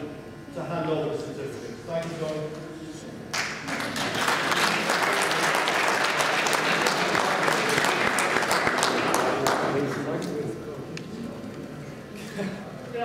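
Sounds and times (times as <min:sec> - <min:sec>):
audience applause: 0:03.3 - 0:10.3.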